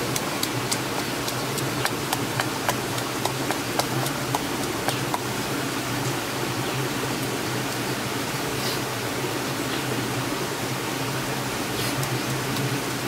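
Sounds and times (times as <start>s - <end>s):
steady hiss: 0.0s - 13.0s
pestle pounding in stone mortar: 0.1s - 5.2s.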